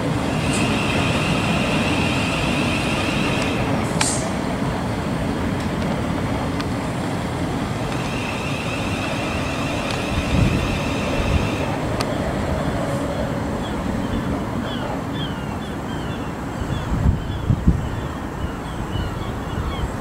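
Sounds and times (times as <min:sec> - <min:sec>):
high whine: 0:00.0 - 0:14.4
train wheels rumbling on rail: 0:00.0 - 0:20.0.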